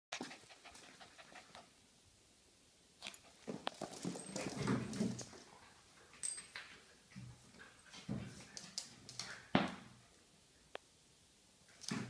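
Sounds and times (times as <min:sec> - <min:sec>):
dogs panting: 0:00.1 - 0:01.7
dogs scuffling: 0:03.0 - 0:09.9.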